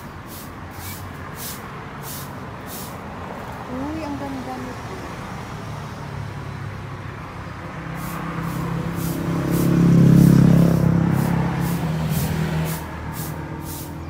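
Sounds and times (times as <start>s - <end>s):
vehicle engine passing by: 0.0s - 14.0s
short high hisses: 0.3s - 3.0s, 8.0s - 14.0s.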